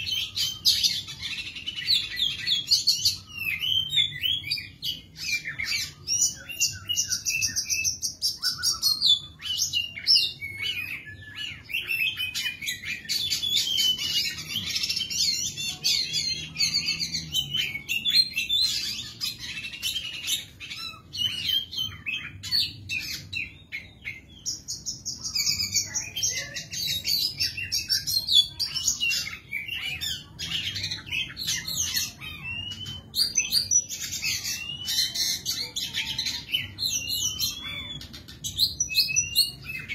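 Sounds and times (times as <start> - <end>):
bird singing whistles and trills: 0.0 - 39.9.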